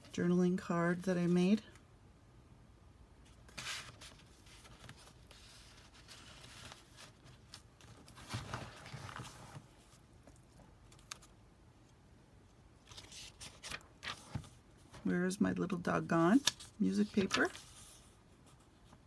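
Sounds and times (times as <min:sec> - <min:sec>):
paper rustling and sliding: 0:03.5 - 0:10.4, 0:12.9 - 0:15.0, 0:16.4 - 0:19.0.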